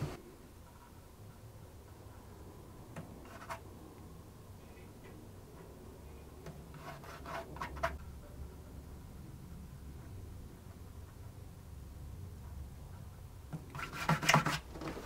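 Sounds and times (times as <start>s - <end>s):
faint low hum: 0.0s - 15.0s
brush rubbing and tapping on wood: 3.0s - 3.7s, 6.4s - 8.1s, 12.4s - 15.0s.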